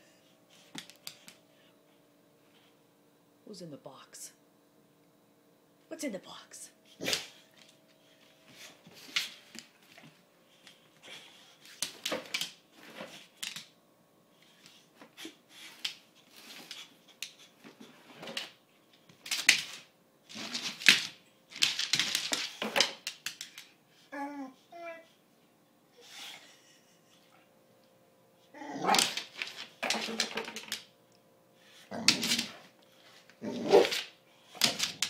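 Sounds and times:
dog claws clicking on tile: 0:13.2 - 0:13.7, 0:18.3 - 0:23.8, 0:28.9 - 0:30.9, 0:33.8 - 0:35.0.

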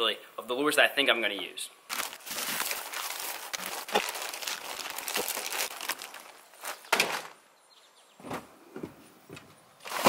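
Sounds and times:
plastic bag crinkling: 0:01.9 - 0:07.4.

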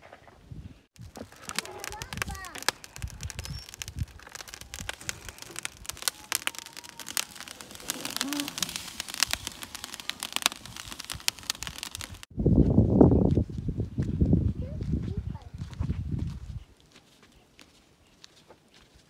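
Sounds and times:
wood fire crackling and popping: 0:01.0 - 0:12.3.

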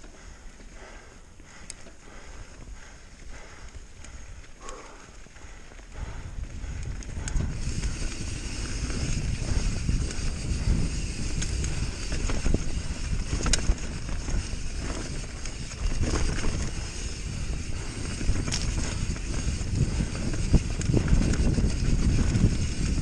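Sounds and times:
bike tyres on dirt trail: 0:00.0 - 0:23.0
wind noise on microphone: 0:05.9 - 0:23.0.

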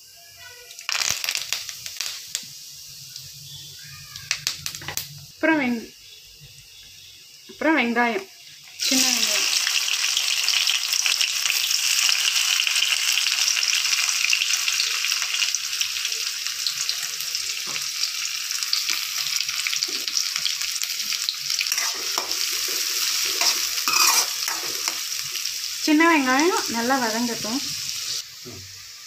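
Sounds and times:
shallots sizzling in oil: 0:00.0 - 0:29.0
spatula scraping a pan: 0:21.6 - 0:25.1.

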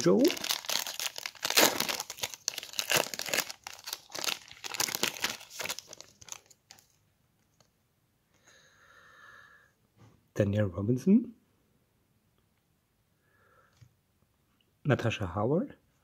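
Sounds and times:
foil wrapper crinkling and tearing: 0:00.0 - 0:07.0.

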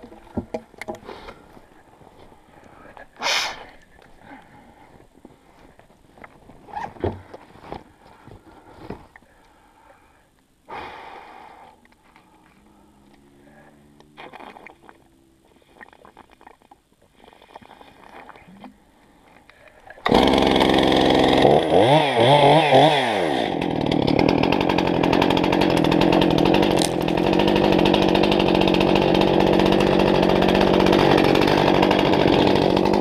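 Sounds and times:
low hum: 0:11.5 - 0:15.8.

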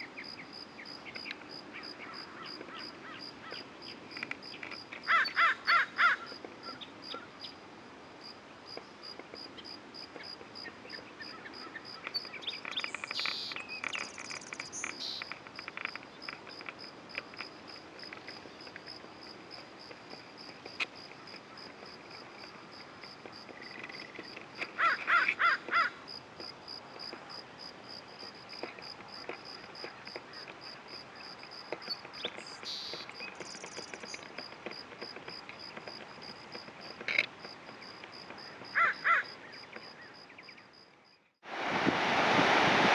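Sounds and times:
crow cawing: 0:05.1 - 0:06.3, 0:24.8 - 0:26.0, 0:38.7 - 0:39.3.

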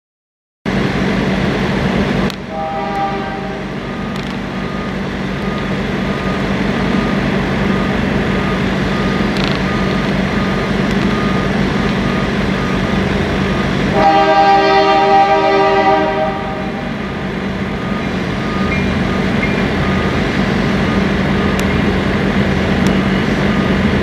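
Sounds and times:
low engine rumble: 0:00.7 - 0:14.2
multi-note horn: 0:02.5 - 0:03.7, 0:13.9 - 0:16.9.

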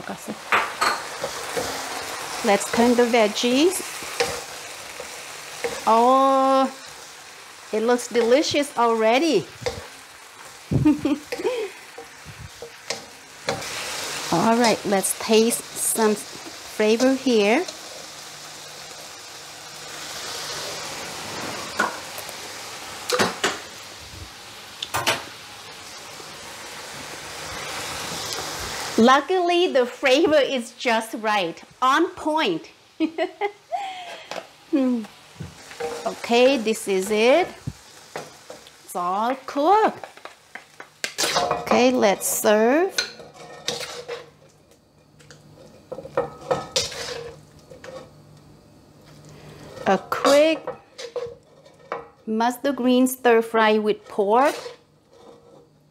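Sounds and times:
greens sizzling in a wok: 0:00.0 - 0:55.9
metal spoon scraping wok: 0:35.7 - 0:36.8, 0:41.0 - 0:44.4, 0:45.6 - 0:48.1, 0:49.6 - 0:52.0, 0:53.9 - 0:55.7.

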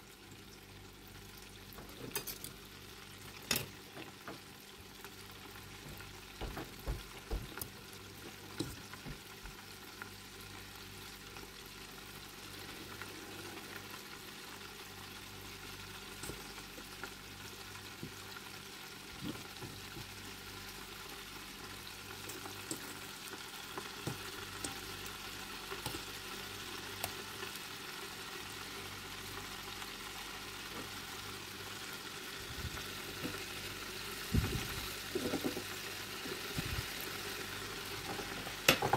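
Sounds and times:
fish frying in hot oil: 0:00.0 - 0:38.9
fork clattering in fryer: 0:03.4 - 0:03.8, 0:38.1 - 0:38.9.

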